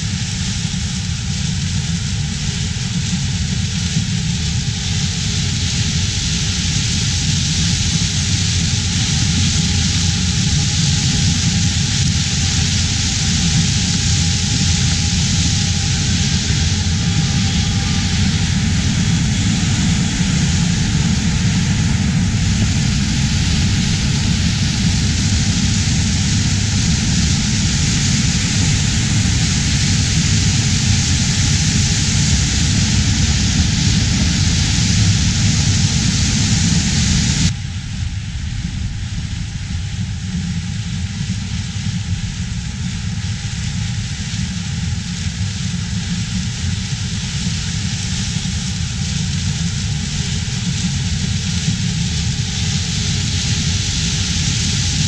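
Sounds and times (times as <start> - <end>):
mechanical running noise: 5.9 - 37.5.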